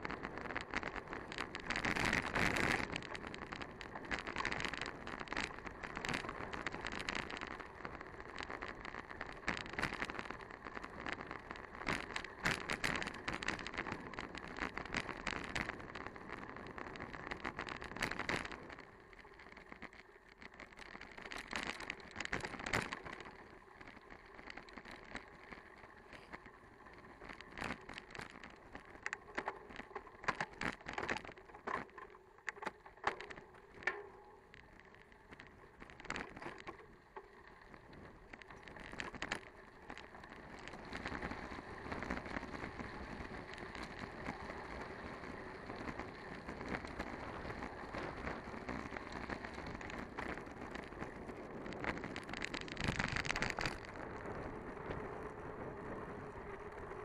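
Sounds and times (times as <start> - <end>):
bicycle tyres rolling: 0.0 - 57.0.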